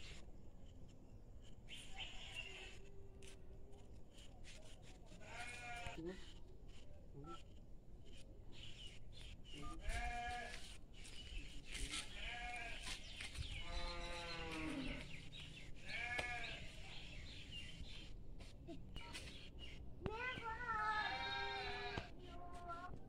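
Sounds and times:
livestock bleating: 0:05.2 - 0:06.0, 0:09.8 - 0:10.6, 0:12.1 - 0:12.9, 0:13.6 - 0:15.0, 0:15.8 - 0:16.6, 0:20.8 - 0:22.1.

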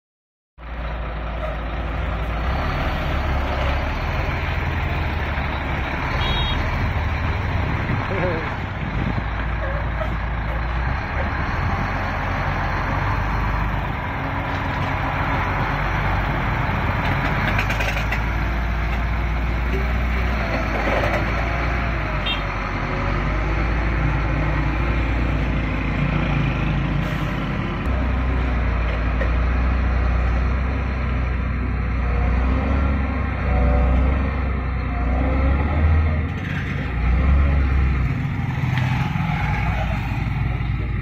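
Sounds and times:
diesel truck engine running: 0:00.6 - 0:41.0.

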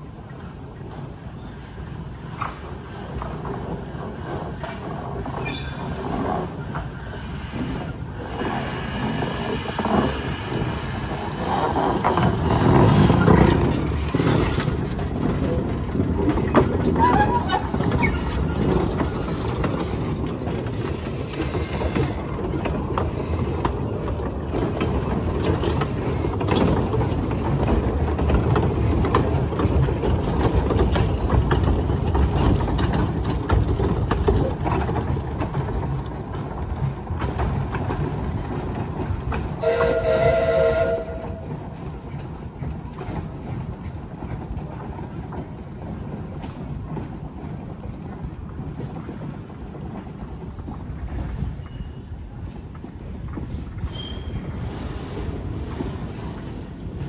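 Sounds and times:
train wheels rumbling and clicking: 0:00.0 - 0:57.0
steam locomotive whistle: 0:39.6 - 0:41.6.

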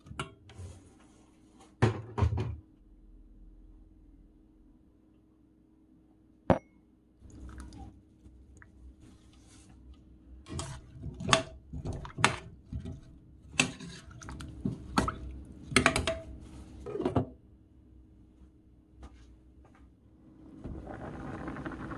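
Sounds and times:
liquid sloshing: 0:10.6 - 0:16.2.

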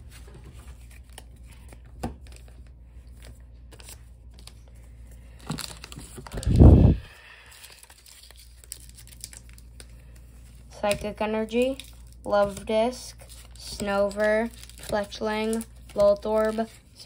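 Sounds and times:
foil wrapper crinkling and tearing: 0:05.3 - 0:06.8, 0:07.4 - 0:10.2, 0:13.1 - 0:17.0.

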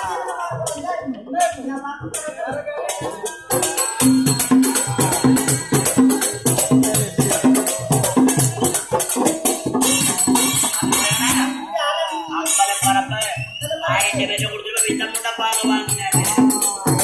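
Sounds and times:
barrel drum beating: 0:02.0 - 0:11.5
hand cymbals jingling: 0:02.2 - 0:17.0.

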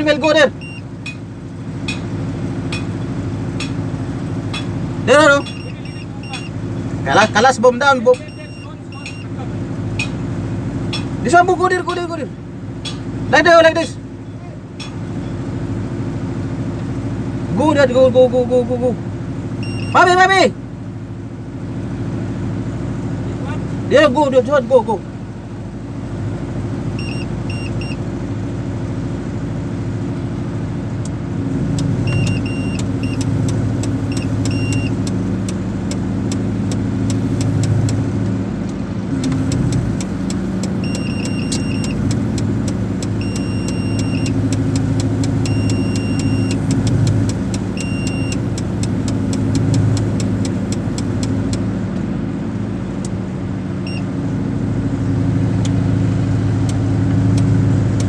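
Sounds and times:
crane diesel engine running: 0:00.0 - 0:58.0
high warning beeps: 0:00.6 - 0:00.9, 0:05.2 - 0:06.6, 0:08.0 - 0:09.4, 0:19.6 - 0:20.1, 0:27.0 - 0:28.0, 0:32.1 - 0:33.3, 0:34.1 - 0:35.1, 0:40.8 - 0:42.0, 0:43.2 - 0:44.4, 0:45.4 - 0:46.7, 0:47.7 - 0:48.4, 0:53.8 - 0:54.1.

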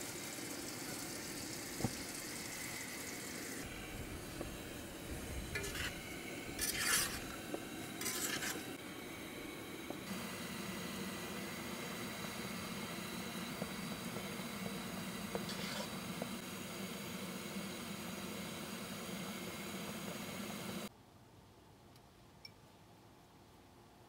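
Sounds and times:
steady hiss: 0:00.0 - 0:20.9
utensil scraping in pan: 0:05.2 - 0:08.8, 0:15.2 - 0:16.3.

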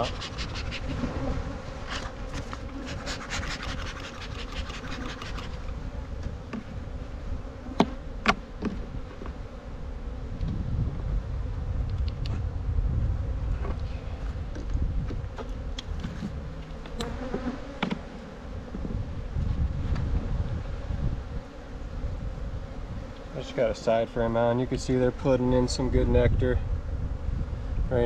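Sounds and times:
hive frame scraping: 0:00.0 - 0:09.7, 0:13.5 - 0:21.8
honeybees buzzing: 0:00.0 - 0:28.0.

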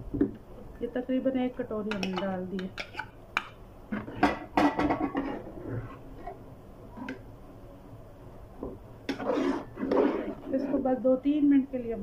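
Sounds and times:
metal ladle scraping pot: 0:09.1 - 0:10.9.

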